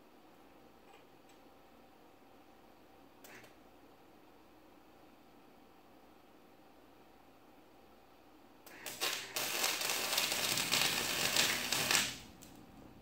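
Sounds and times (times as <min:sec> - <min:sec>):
arc welder crackling: 0:08.7 - 0:12.6.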